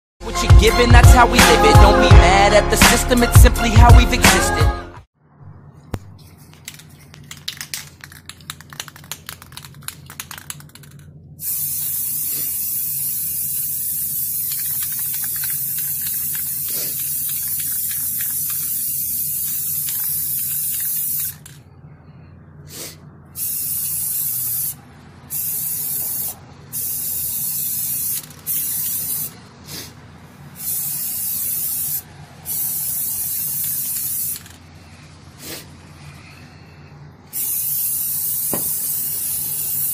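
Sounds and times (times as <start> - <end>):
spray can rattling: 6.2 - 21.6, 23.4 - 29.4, 30.6 - 34.6, 37.3 - 39.9
spray paint can hissing: 6.4 - 21.6, 23.4 - 29.9, 30.6 - 34.6, 37.3 - 39.9.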